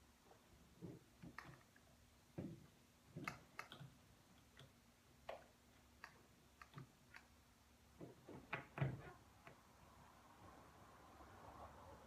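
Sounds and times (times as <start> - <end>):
faint plastic clicks and knocks: 0.3 - 9.6.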